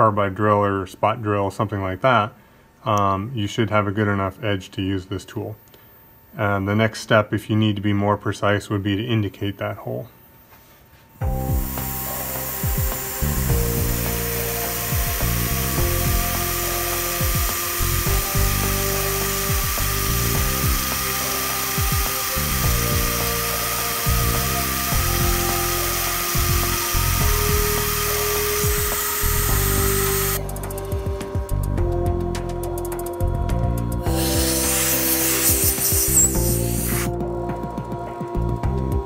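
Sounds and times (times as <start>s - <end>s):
milling cutter whine: 11.2s - 31.5s, 34.0s - 37.2s
background music with a beat: 11.2s - 39.0s
coolant spray hiss: 11.4s - 30.5s, 34.1s - 37.1s.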